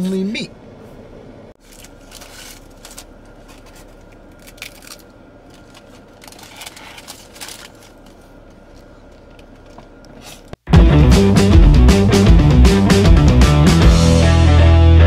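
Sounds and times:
faint hum inside a car: 0.0 - 10.6
crunchy taco bitten and chewed: 1.6 - 9.7
paper wrapper rustling and crinkling: 1.6 - 10.6.

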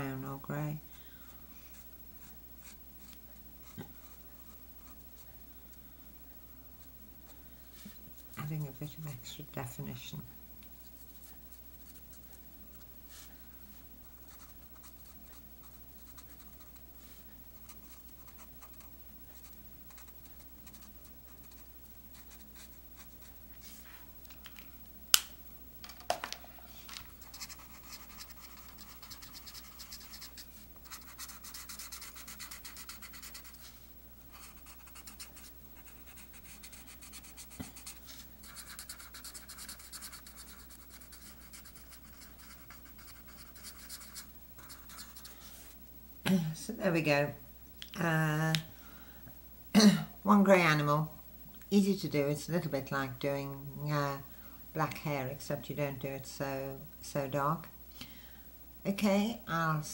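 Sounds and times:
marker scratching on paper: 14.3 - 23.3, 27.2 - 33.7, 34.3 - 45.4.

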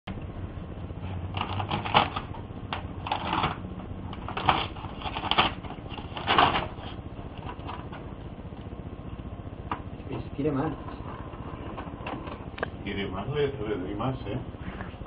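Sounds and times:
printer clattering and whirring: 0.1 - 14.4
low hum: 0.1 - 15.0
sharp printer clacks: 1.3 - 3.6.

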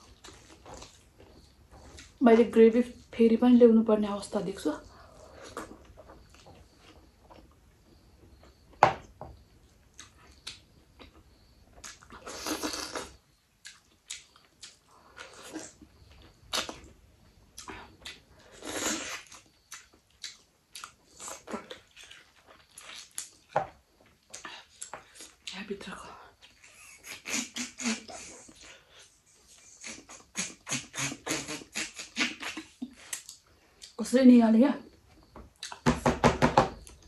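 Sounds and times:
person chewing food: 0.0 - 2.2, 5.0 - 7.6, 9.7 - 16.9, 17.5 - 25.5.

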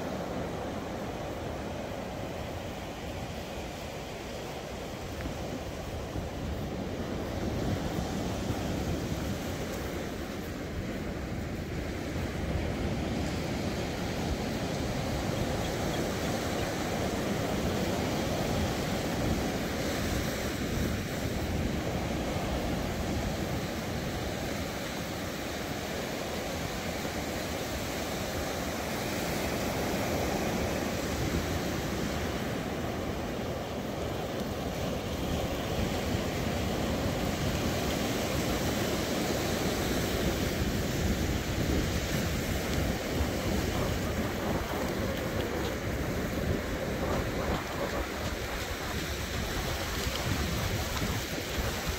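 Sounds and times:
surf washing onto beach: 0.0 - 51.9
wind buffeting microphone: 26.7 - 51.9.

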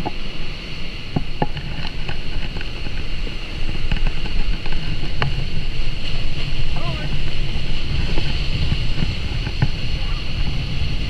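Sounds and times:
water spraying off water skis: 0.0 - 11.0
wind rushing over microphone: 0.0 - 11.0.

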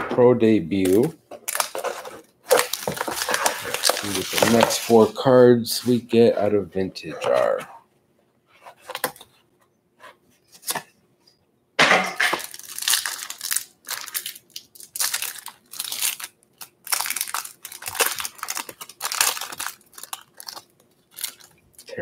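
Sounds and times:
plastic wrapper crinkling: 0.8 - 5.2, 12.3 - 21.9
cardboard box handling: 1.7 - 5.1.

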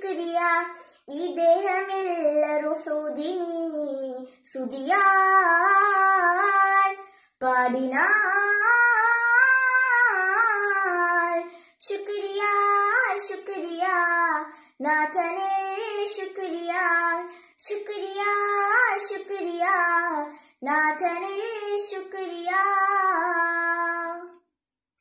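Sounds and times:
girl singing solo: 0.0 - 24.4
singer breathing: 0.7 - 1.1, 7.0 - 7.4, 11.5 - 11.8, 14.4 - 14.8, 17.3 - 17.6, 20.3 - 20.6.

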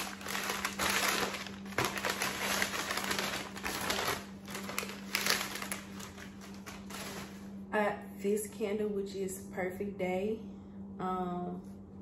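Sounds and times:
packing paper crinkling: 0.0 - 7.6.

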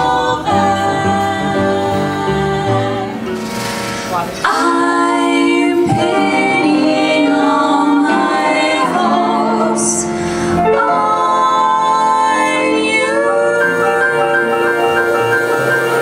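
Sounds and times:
women singing in harmony: 0.0 - 3.4, 4.4 - 16.0
drums: 0.0 - 16.0
piano: 0.0 - 16.0.

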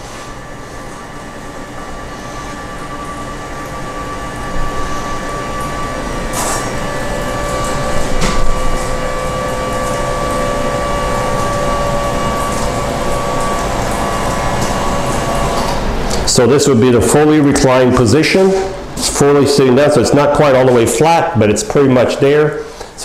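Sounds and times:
electric motor whine: 0.4 - 16.4.

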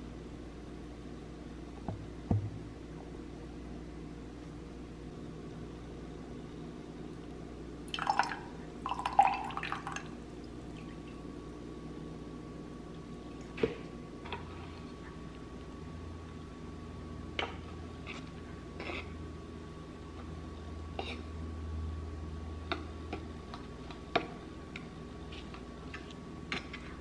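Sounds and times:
liquid pouring into a glass: 7.9 - 10.2.

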